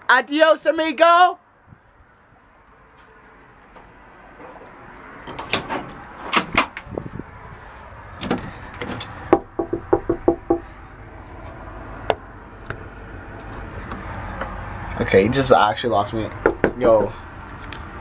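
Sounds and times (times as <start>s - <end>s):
knocking on a door: 9.3s - 10.6s, 16.4s - 16.8s.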